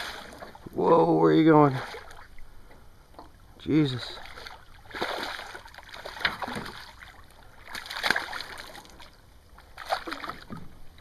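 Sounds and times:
fish thrashing and splashing: 4.2s - 11.0s.

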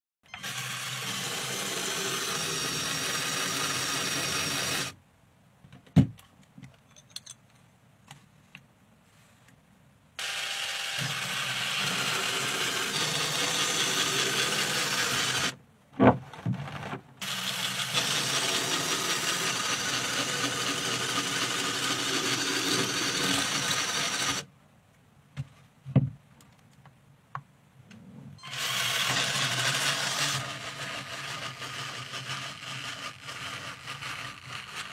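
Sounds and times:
toy car motors whirring: 0.4s - 5.0s, 10.2s - 15.6s, 17.2s - 24.5s, 28.4s - 34.9s.

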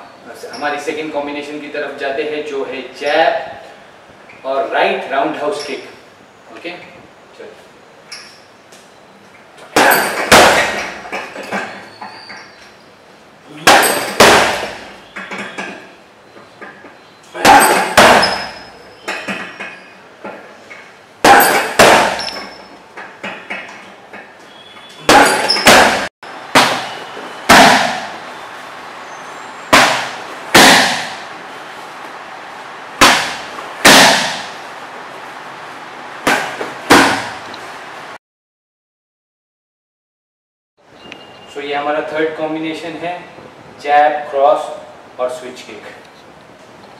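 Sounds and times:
punches and kicks smacking bag: 9.7s - 11.3s, 13.6s - 15.4s, 17.4s - 18.7s, 21.2s - 22.6s, 25.0s - 28.2s, 29.7s - 31.3s, 33.0s - 34.6s, 36.2s - 37.4s
strikes on pads: 9.8s - 11.3s, 13.6s - 15.8s, 17.4s - 19.4s, 21.2s - 22.5s, 25.0s - 28.2s, 29.7s - 31.3s, 33.0s - 34.6s, 36.2s - 37.4s.

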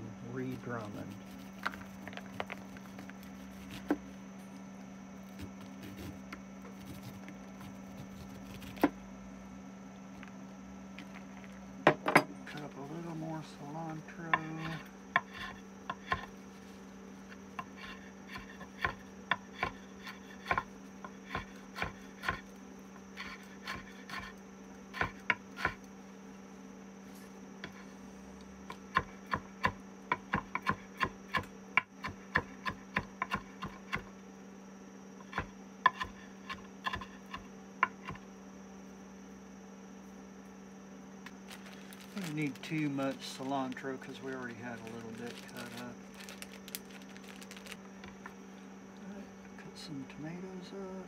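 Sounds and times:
steady low hum: 0.0s - 51.0s
knife chopping on wooden board: 1.0s - 4.0s, 5.4s - 9.0s, 14.3s - 16.4s, 17.6s - 22.5s, 24.9s - 25.8s, 28.7s - 34.1s, 35.2s - 38.2s.

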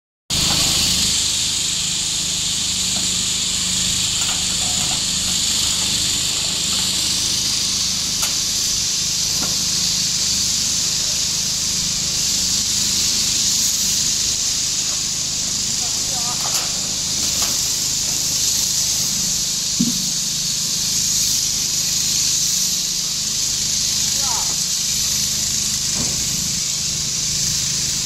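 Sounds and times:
high-pitched hiss: 0.3s - 28.0s.

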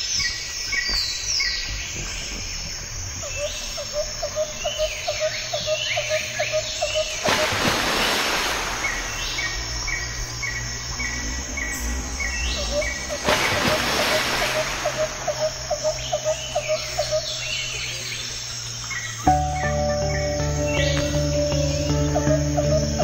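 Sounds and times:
birds and insects chirping: 0.0s - 23.0s.

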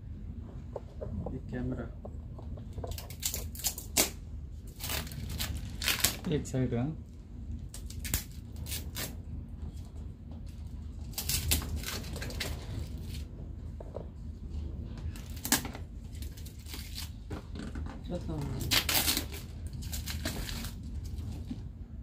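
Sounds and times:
steady low hum: 0.0s - 22.0s
paper packaging rustling: 2.7s - 6.4s, 18.4s - 21.4s.

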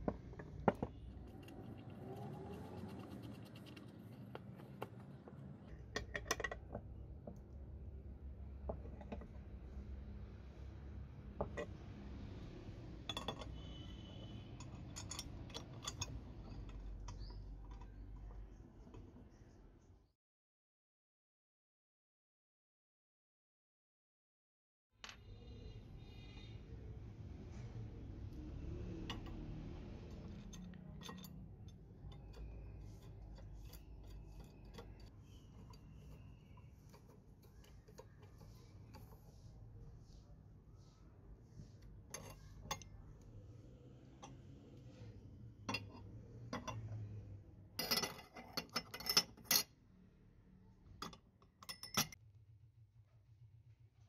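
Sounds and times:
steel parts clicking and clinking: 13.1s - 19.0s, 30.1s - 39.2s, 42.1s - 42.9s, 47.8s - 49.7s, 51.0s - 52.2s.

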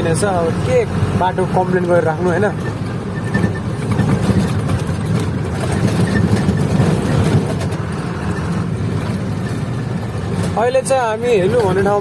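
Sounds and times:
road noise: 0.0s - 12.0s
truck engine rumble: 0.0s - 12.0s
small rattles: 2.3s - 10.9s.

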